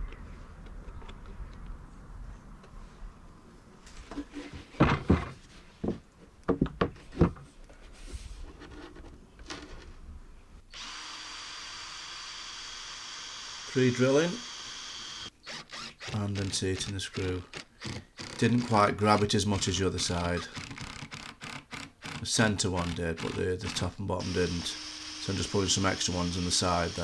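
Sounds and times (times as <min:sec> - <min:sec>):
wooden panels knocking: 0:04.8 - 0:07.4.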